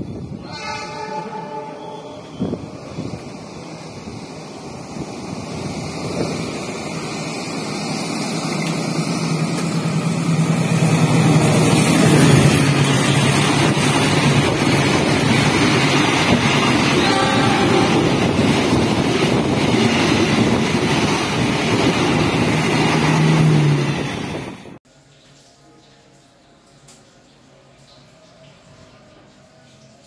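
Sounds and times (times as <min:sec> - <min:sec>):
locomotive engine hum: 0:01.9 - 0:24.8
train wheels rushing: 0:02.3 - 0:24.8.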